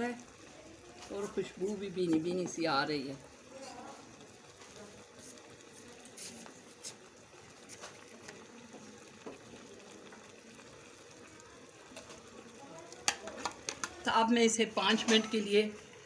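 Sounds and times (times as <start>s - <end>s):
pan bubbling and sizzling: 0.0s - 16.0s.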